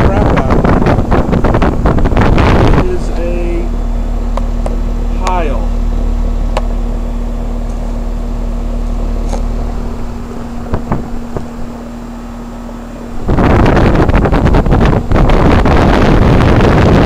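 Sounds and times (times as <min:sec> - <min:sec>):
heat pump humming: 0:00.0 - 0:17.0
wind buffeting microphone: 0:00.0 - 0:17.0.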